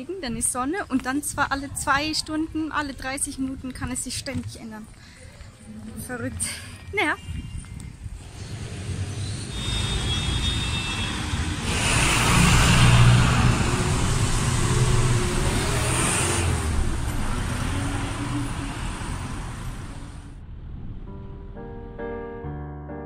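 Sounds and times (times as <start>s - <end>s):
street traffic rumble: 0.0s - 21.3s
soft piano music: 21.1s - 23.0s.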